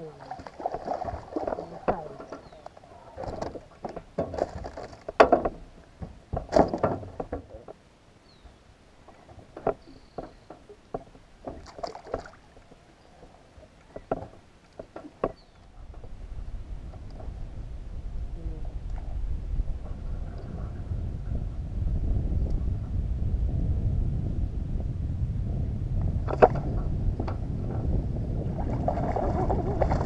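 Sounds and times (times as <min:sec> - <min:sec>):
water splashing: 0:00.0 - 0:05.2, 0:09.0 - 0:15.3, 0:28.4 - 0:30.0
knocks and clicks on a boat: 0:00.9 - 0:07.8, 0:09.2 - 0:16.2, 0:16.8 - 0:17.4, 0:26.0 - 0:28.0.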